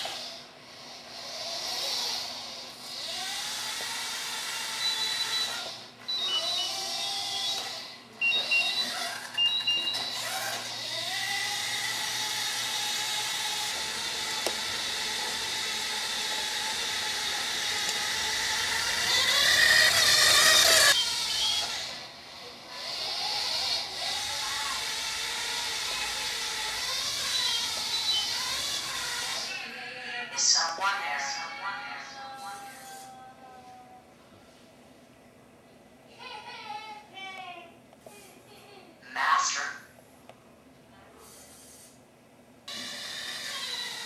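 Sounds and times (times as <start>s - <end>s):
electric motors whining: 0.0s - 30.1s, 31.4s - 33.8s, 42.7s - 44.0s.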